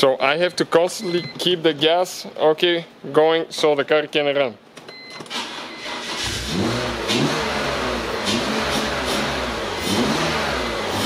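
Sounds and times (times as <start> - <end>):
car engine starting and revving: 5.3 - 11.0.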